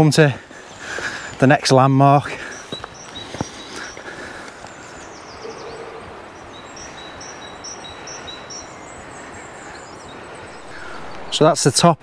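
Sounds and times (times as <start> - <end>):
steady background noise: 0.0 - 12.0
bird thin falling calls: 2.4 - 11.4.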